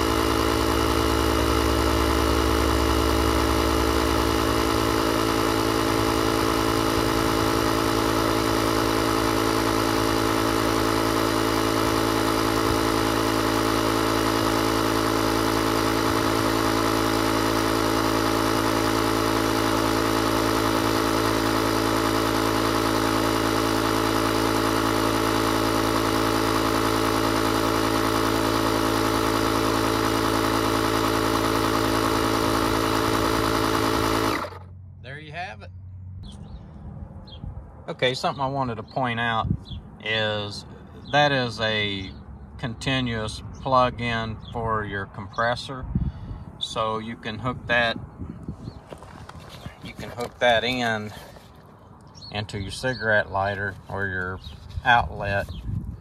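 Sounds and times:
air compressor running: 0.0s - 34.8s, 45.9s - 46.9s, 47.5s - 56.0s.

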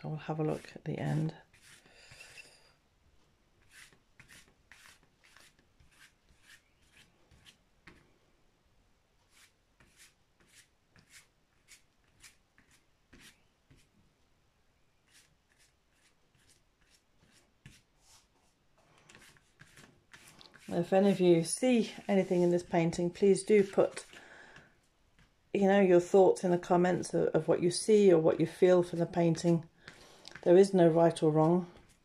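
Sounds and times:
paintbrush strokes on canvas: 0.5s - 2.4s, 3.6s - 8.0s, 9.2s - 13.9s, 15.0s - 24.2s.

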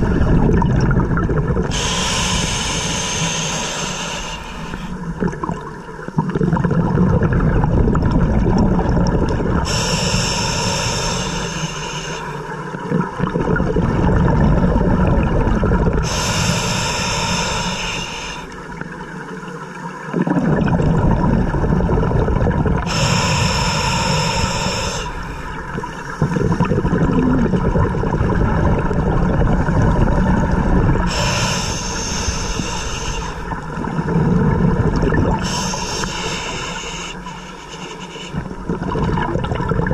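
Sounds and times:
exhaled bubbles rumbling: 0.0s - 11.8s, 12.4s - 37.3s, 38.3s - 39.9s
regulator inhale hiss: 1.7s - 5.1s, 9.6s - 12.5s, 16.0s - 18.6s, 22.8s - 26.6s, 31.1s - 33.6s, 35.4s - 38.6s.

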